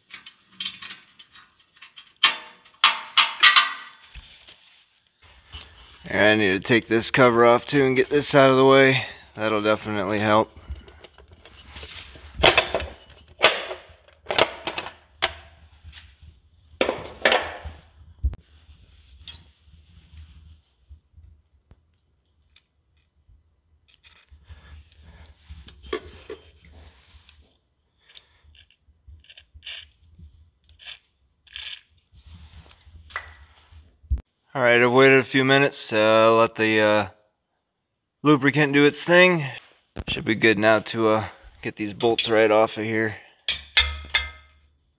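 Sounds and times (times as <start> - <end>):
knocks and clatters: 0.0 - 4.1, 43.5 - 44.6.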